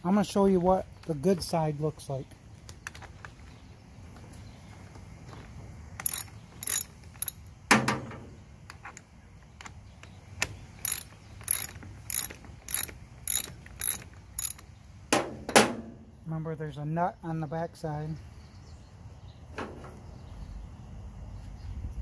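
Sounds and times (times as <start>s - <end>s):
ratchet wrench clicking: 6.0s - 7.4s, 10.8s - 14.7s.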